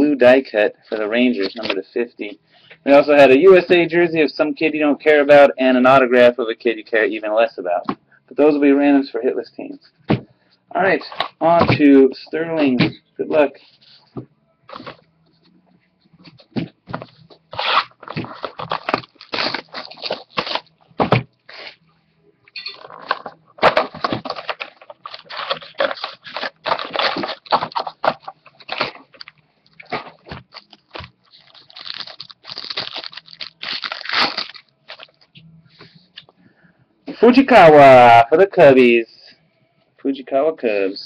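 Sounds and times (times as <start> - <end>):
cardboard and wrappers crinkling and tearing: 16.9 - 20.7, 22.8 - 35.2.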